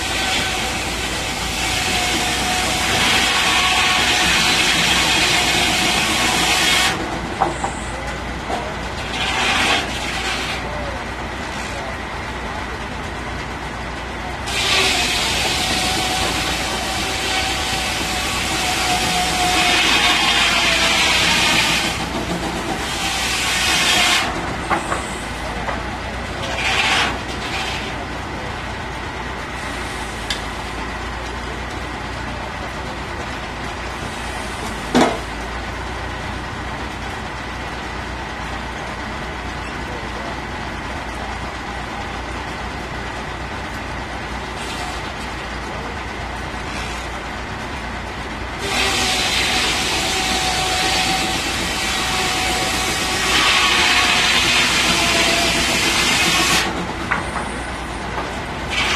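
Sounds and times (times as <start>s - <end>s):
saw blade cutting wood: 0.0s - 7.0s, 9.0s - 10.7s, 14.5s - 25.2s, 26.4s - 28.0s, 48.6s - 57.2s, 58.7s - 58.9s.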